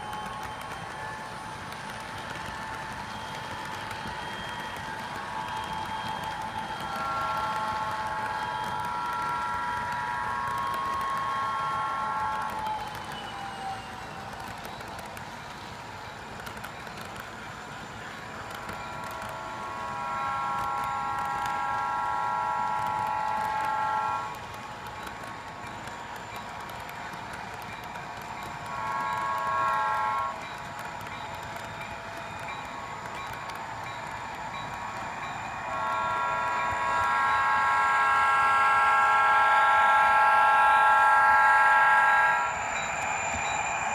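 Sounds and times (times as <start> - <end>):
model freight cars rolling: 0.0 - 38.5
air horn blast from small speaker: 35.7 - 42.6.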